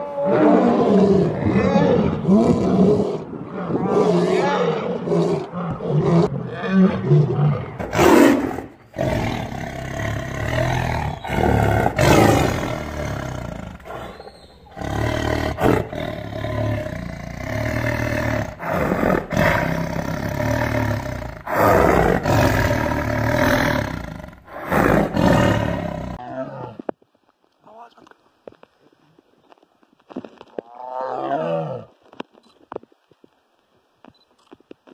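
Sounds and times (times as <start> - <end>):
lioness roaring: 0.0 - 26.8
tiger roaring: 0.0 - 26.8.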